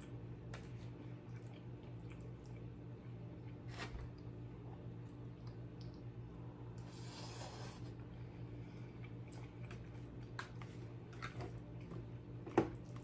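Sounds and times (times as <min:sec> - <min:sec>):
low steady hum: 0:00.0 - 0:13.0
person chewing: 0:00.1 - 0:02.8, 0:08.8 - 0:12.1.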